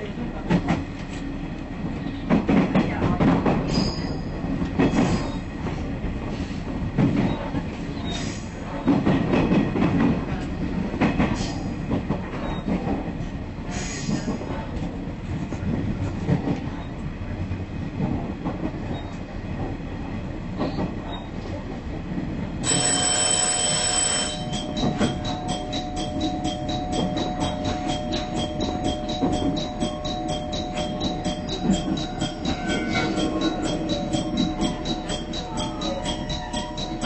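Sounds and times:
train wheels and engine rumbling: 0:00.0 - 0:37.0
level-crossing warning bell: 0:22.6 - 0:37.0.

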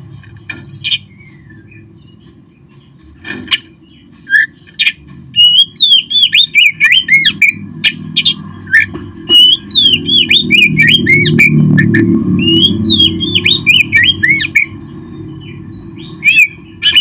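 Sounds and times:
bird singing whistled notes: 0:03.8 - 0:17.0.

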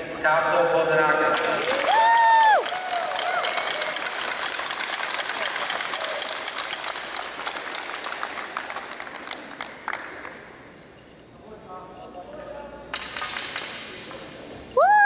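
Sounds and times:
crowd applauding: 0:01.4 - 0:10.6.

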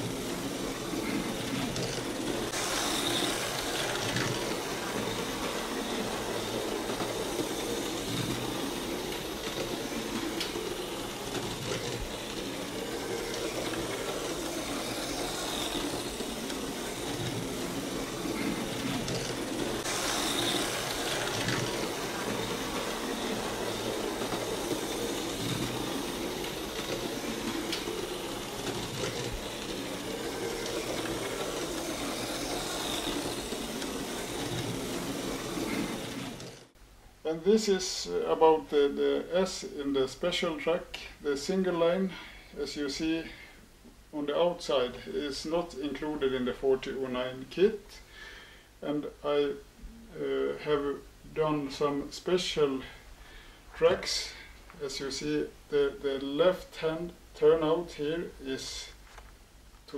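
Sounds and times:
slot car motors whirring: 0:00.0 - 0:36.8.

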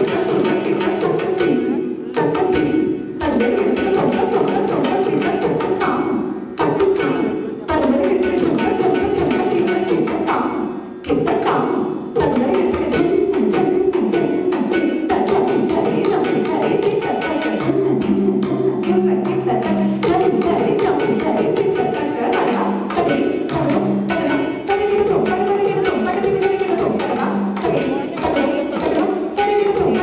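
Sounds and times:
cymbals ringing: 0:00.0 - 0:30.0
person singing: 0:14.3 - 0:30.0.

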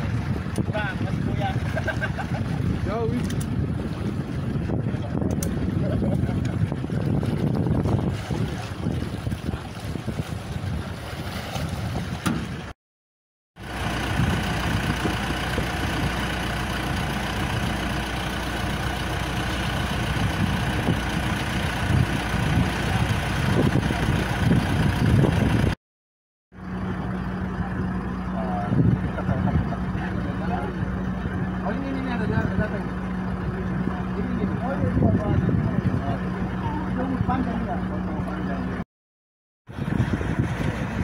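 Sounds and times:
wind buffeting microphone: 0:00.0 - 0:12.7, 0:20.0 - 0:25.8, 0:28.6 - 0:31.7, 0:34.4 - 0:37.5, 0:39.7 - 0:41.0.

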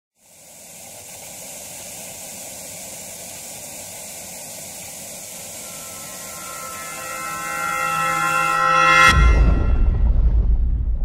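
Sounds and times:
television static hiss: 0:00.2 - 0:07.6.

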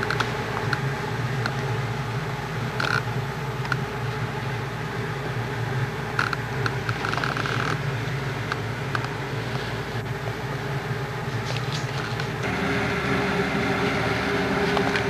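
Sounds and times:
film projector humming: 0:00.0 - 0:15.0.

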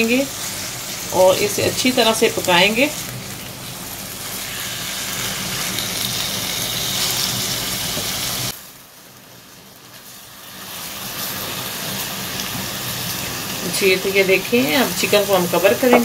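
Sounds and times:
chicken sizzling in oil: 0:00.0 - 0:16.0.

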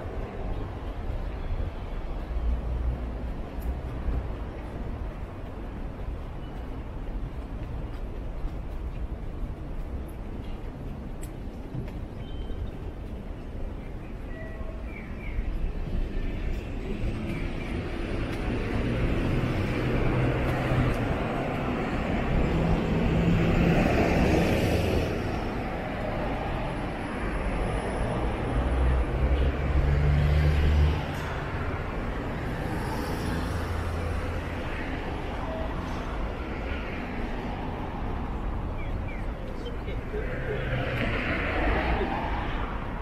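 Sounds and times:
cars passing: 0:12.7 - 0:43.0.

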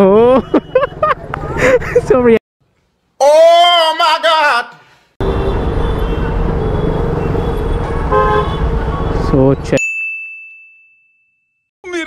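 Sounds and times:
busy street traffic: 0:00.0 - 0:02.4, 0:05.2 - 0:09.8
vehicle horn toots: 0:05.2 - 0:09.2
high ding: 0:09.8 - 0:11.7.

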